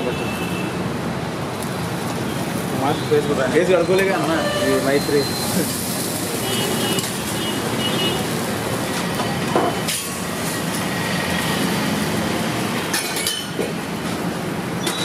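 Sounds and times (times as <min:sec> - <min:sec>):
steady rushing background noise: 0:00.0 - 0:15.0.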